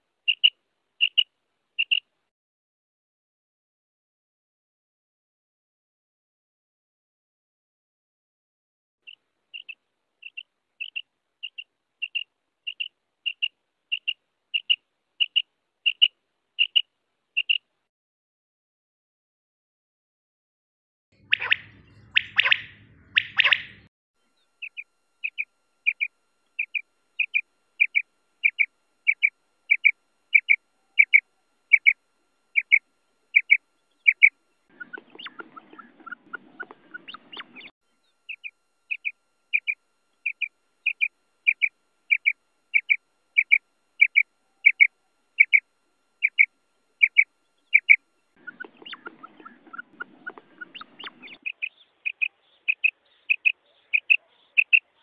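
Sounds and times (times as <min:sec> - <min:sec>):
low rough bird sounds: 0:00.2 - 0:02.0, 0:09.1 - 0:16.8, 0:21.2 - 0:45.6, 0:46.2 - 0:55.0
quail calling: 0:00.3 - 0:02.0, 0:09.1 - 0:17.6, 0:21.2 - 0:23.9, 0:24.6 - 0:37.7, 0:38.3 - 0:55.0.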